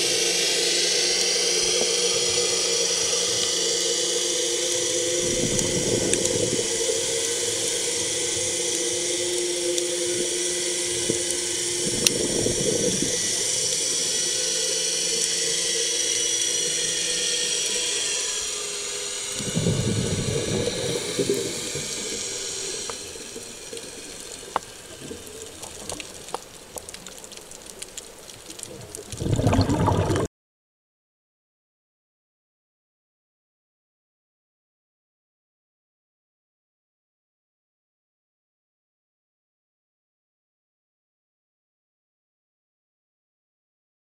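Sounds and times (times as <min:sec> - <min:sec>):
steady underwater hiss: 0:00.0 - 0:30.3
bubbling of exhaled breath: 0:11.8 - 0:13.3, 0:28.7 - 0:30.3.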